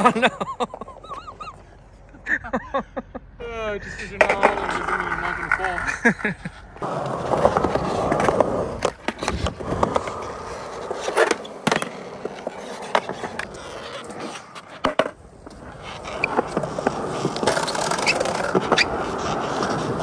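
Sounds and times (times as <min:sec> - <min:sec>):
skateboard wheels rolling on concrete: 0:00.0 - 0:02.9, 0:03.7 - 0:20.0
skateboard clacking on ground: 0:04.1 - 0:20.0.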